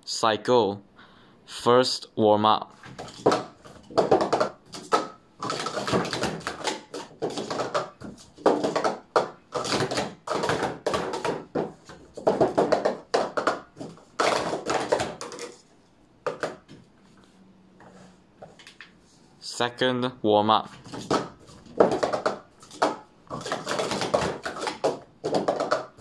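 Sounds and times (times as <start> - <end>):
plastic cups clattering: 2.8 - 16.9, 20.7 - 26.0.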